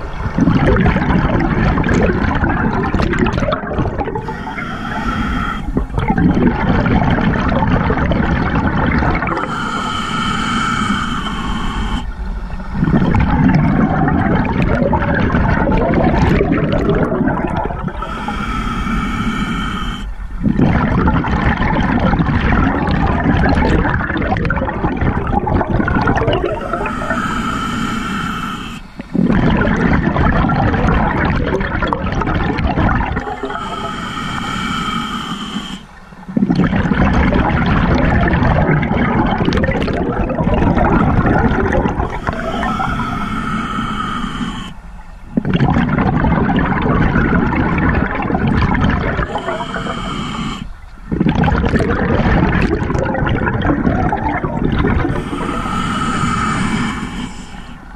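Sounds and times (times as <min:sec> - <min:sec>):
bubbling exhales underwater: 0:00.0 - 0:57.8
hissing regulator inhales: 0:04.1 - 0:06.0, 0:09.2 - 0:13.2, 0:17.5 - 0:20.6, 0:25.3 - 0:29.4, 0:33.2 - 0:36.4, 0:41.6 - 0:45.4, 0:49.0 - 0:51.2, 0:54.4 - 0:57.9.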